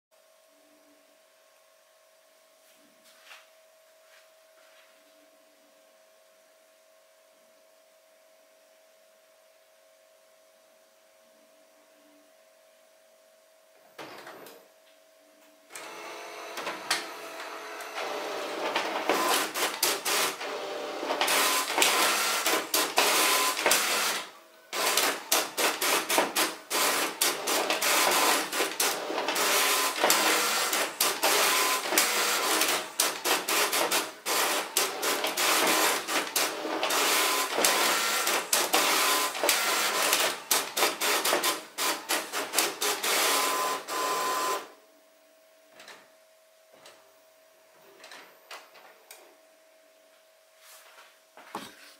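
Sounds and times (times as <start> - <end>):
inkjet printer printing: 15.7 - 44.8
print head carriage sweeping: 15.8 - 44.6.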